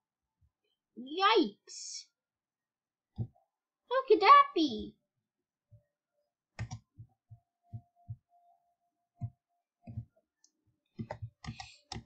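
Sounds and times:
computer mouse clicks: 6.6s - 7.0s, 9.2s - 12.0s.

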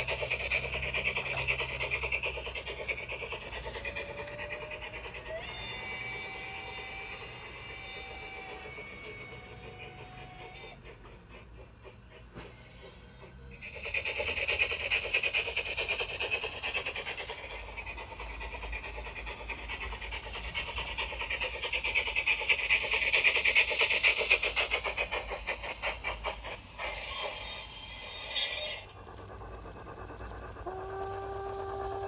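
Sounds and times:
model steam locomotive chuffing: 0.0s - 32.0s.

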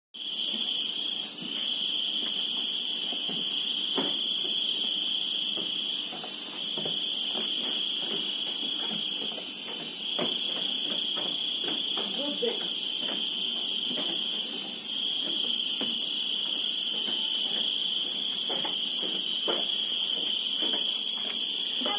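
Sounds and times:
insects shrilling: 0.2s - 21.9s.

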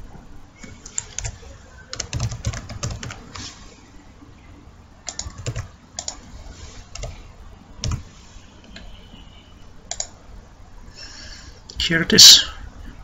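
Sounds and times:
typing on computer keyboard: 0.6s - 3.2s, 5.1s - 6.2s, 6.9s - 7.1s, 7.8s - 8.0s, 9.9s - 10.1s.

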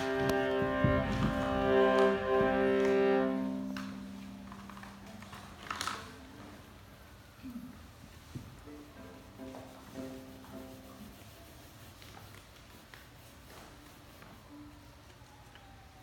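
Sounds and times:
strings holding a bowed chord: 0.0s - 6.6s.

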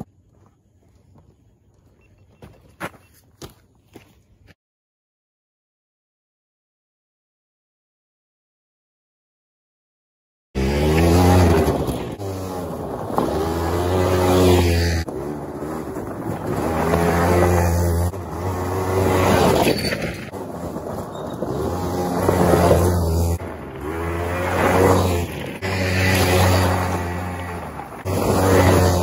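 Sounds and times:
tyres on gravel: 0.0s - 4.5s, 10.6s - 29.0s
atv engine revving: 10.6s - 29.0s.

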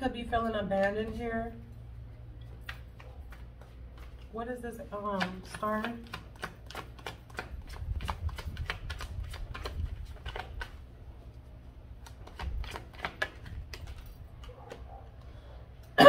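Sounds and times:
cards being shuffled: 2.5s - 4.3s, 5.1s - 15.0s.

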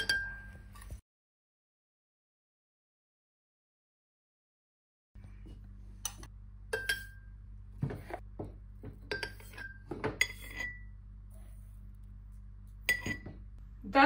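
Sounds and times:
metal spoon clinking on glass: 0.0s - 0.6s, 6.7s - 7.2s, 9.1s - 10.9s, 12.8s - 13.3s
steady low hum: 5.2s - 14.0s.

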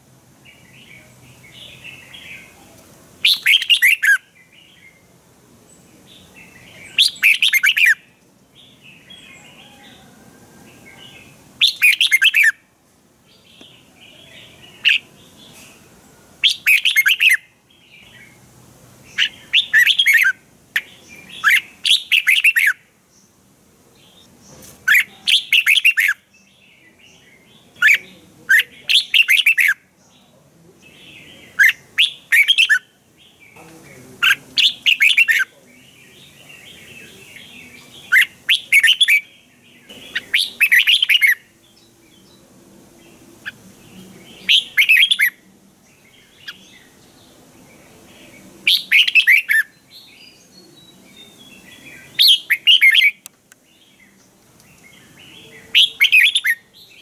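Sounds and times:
bird chattering: 3.2s - 4.2s, 6.3s - 8.0s, 11.6s - 12.6s, 14.4s - 15.1s, 16.4s - 17.4s, 19.1s - 22.8s, 24.9s - 26.2s, 27.6s - 29.8s, 30.9s - 32.9s, 33.9s - 35.6s, 36.2s - 39.3s, 39.9s - 41.4s, 44.4s - 45.4s, 48.6s - 49.7s, 52.1s - 53.3s, 55.4s - 56.7s
bird whistled song: 3.2s - 5.0s, 6.4s - 8.0s, 11.6s - 12.6s, 16.4s - 17.4s, 19.2s - 22.8s, 24.9s - 26.2s, 27.4s - 29.8s, 39.9s - 42.4s, 44.4s - 45.4s, 48.7s - 53.3s, 54.8s - 57.0s.

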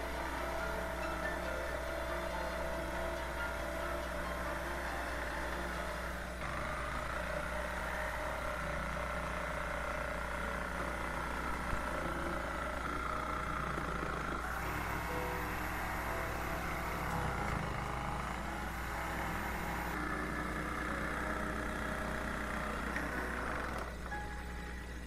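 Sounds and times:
jigsaw cutting plywood: 0.0s - 24.2s.

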